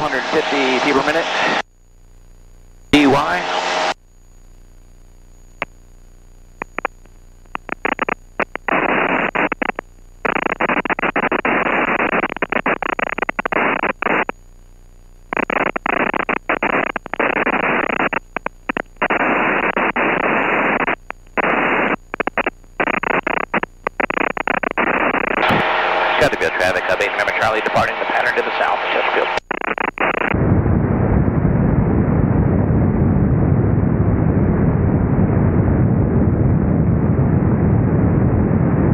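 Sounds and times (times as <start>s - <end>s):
radio static hiss: 0.0s - 30.4s
short radio clicks: 6.6s - 8.7s.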